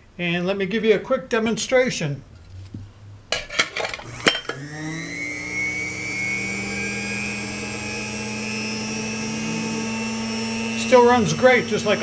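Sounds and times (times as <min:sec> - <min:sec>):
mixer motor humming and whining: 0:04.0 - 0:12.0.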